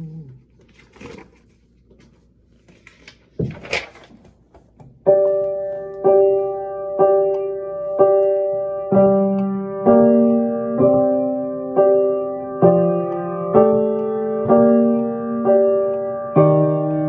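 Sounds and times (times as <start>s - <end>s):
piano chords ringing: 5.0s - 17.0s.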